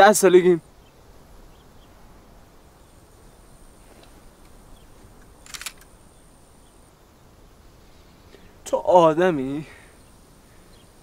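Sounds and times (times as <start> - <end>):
high insect drone: 0.0 - 11.0
sharp clicks: 5.2 - 5.9.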